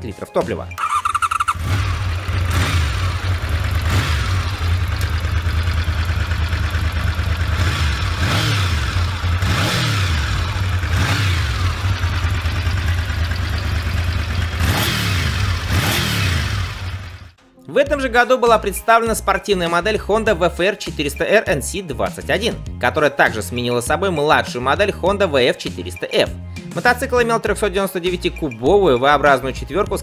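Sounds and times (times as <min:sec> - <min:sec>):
motorcycle engine idling and revving: 0:00.8 - 0:17.4.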